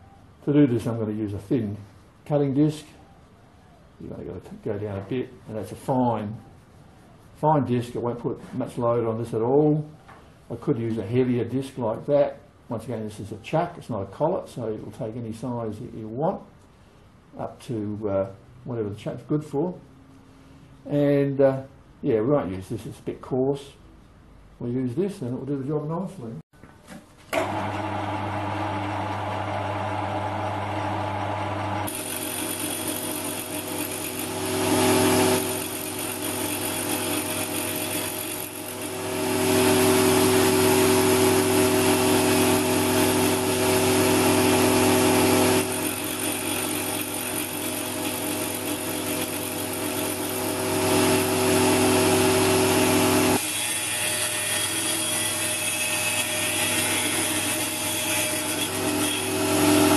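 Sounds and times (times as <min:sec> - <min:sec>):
motor hum: 0:27.4 - 0:53.5
cutting disc grinding metal: 0:27.4 - 0:59.9.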